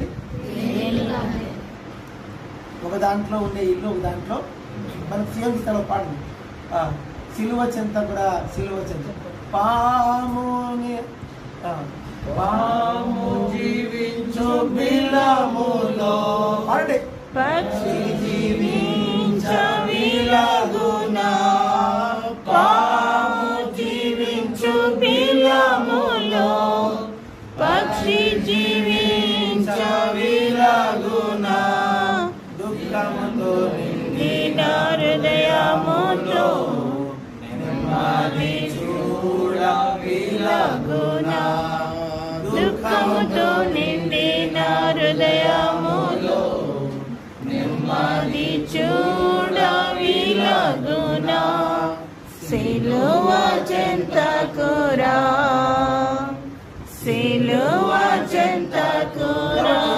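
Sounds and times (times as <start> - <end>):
man leading group singing: 9.5 - 59.9.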